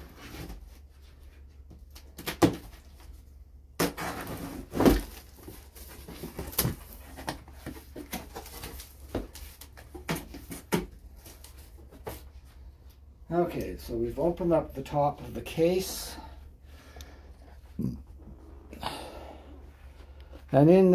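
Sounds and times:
cardboard tearing and scraping: 3.8s - 12.2s
cardboard rustles and taps: 3.8s - 12.3s.

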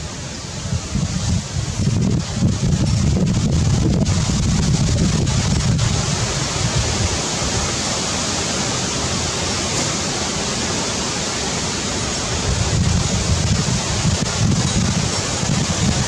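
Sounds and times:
steady rushing hiss: 0.0s - 16.0s
low rumble: 0.6s - 7.2s.

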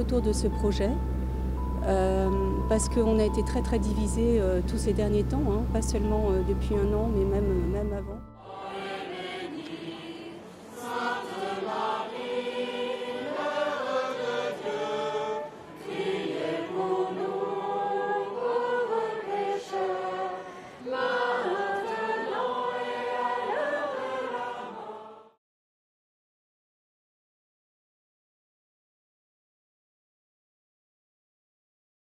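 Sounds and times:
crowd singing: 8.4s - 25.4s.

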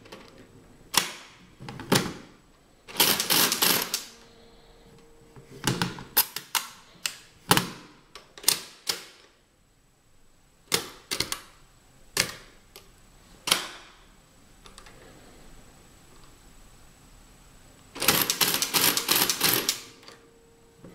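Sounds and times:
mechanical calculator clacking: 2.9s - 4.1s, 18.0s - 19.8s.

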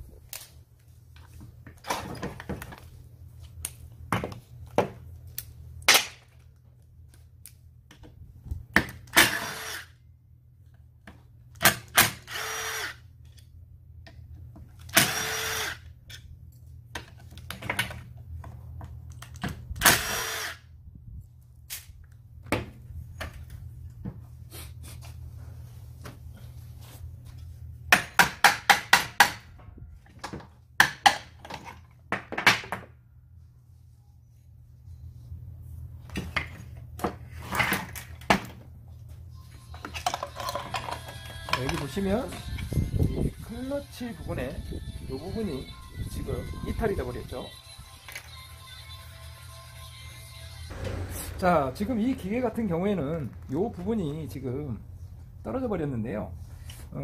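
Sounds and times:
low steady hum: 50.7s - 56.7s.

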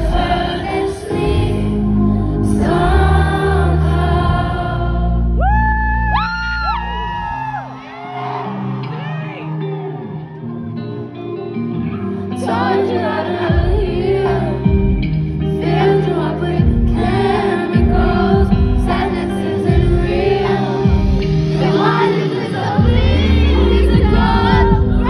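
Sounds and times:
heavy bass: 1.1s - 7.6s, 16.4s - 22.0s, 22.7s - 25.0s
pop backing track: 11.0s - 25.0s
person singing: 15.4s - 25.0s.

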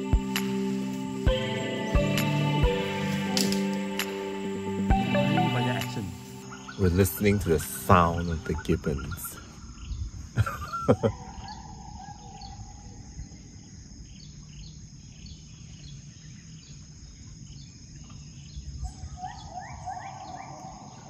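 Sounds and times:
high-pitched insect drone: 0.0s - 11.2s.

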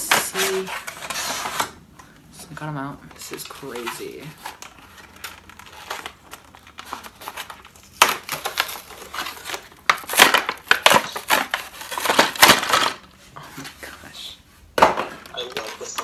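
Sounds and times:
toy packaging crinkling and crunching: 3.1s - 13.1s.

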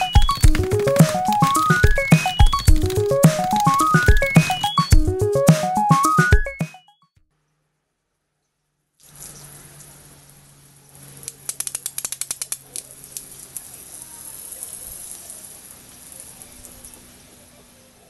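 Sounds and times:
sharp clicks: 0.0s - 6.2s
hose water splashing on concrete: 9.0s - 17.5s
hissing hose spray: 9.0s - 18.0s.

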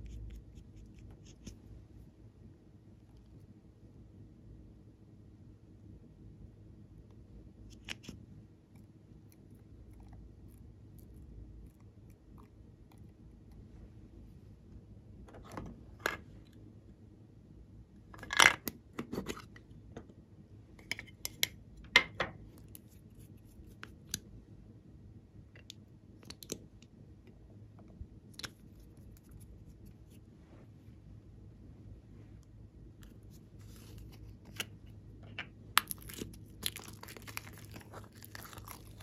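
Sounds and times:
soft scrapes: 28.7s - 31.0s, 33.0s - 34.6s.

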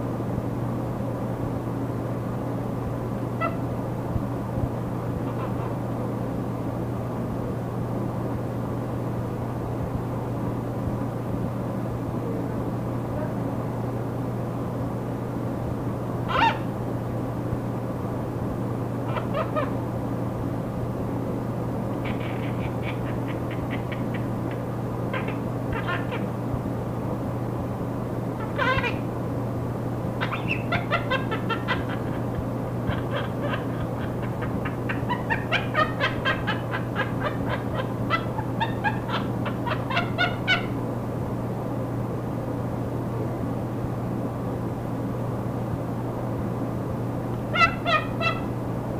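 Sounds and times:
recording static hum and hiss: 0.0s - 48.9s
parakeet calling: 3.3s - 3.7s, 5.2s - 5.8s, 16.3s - 16.7s, 19.0s - 19.8s, 21.9s - 26.3s, 28.4s - 29.1s, 30.2s - 40.8s, 47.5s - 48.6s.

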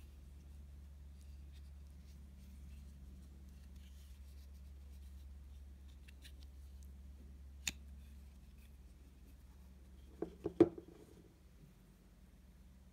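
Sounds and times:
knife knocking on a table: 10.2s - 11.0s.

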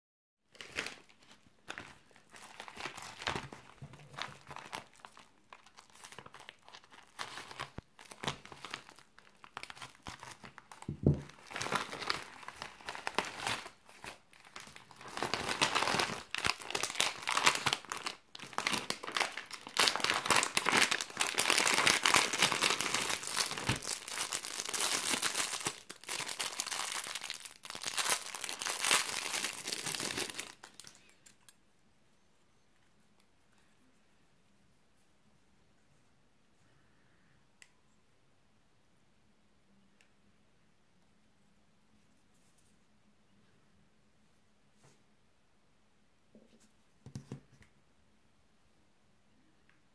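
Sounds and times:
plastic packaging crinkling and tearing: 0.5s - 31.5s.

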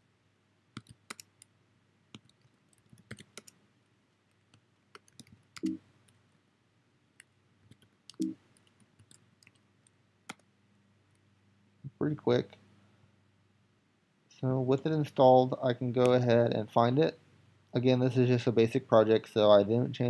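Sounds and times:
keyboard keys clicking: 0.8s - 1.4s, 2.2s - 3.6s.

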